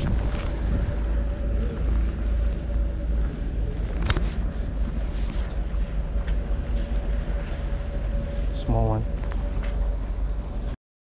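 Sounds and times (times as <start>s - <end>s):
steady motor hum: 0.0s - 10.8s
wind rumble on microphone: 0.0s - 10.8s.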